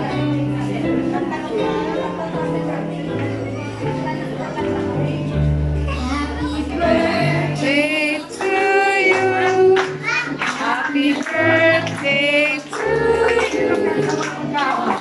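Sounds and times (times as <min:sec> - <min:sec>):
woman singing: 0:06.8 - 0:15.0.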